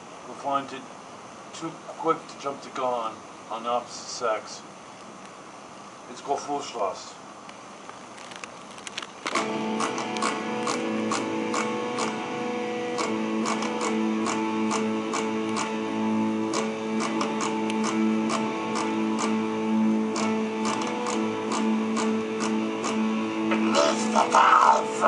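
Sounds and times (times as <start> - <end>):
electric guitar chords: 9.3 - 25.0.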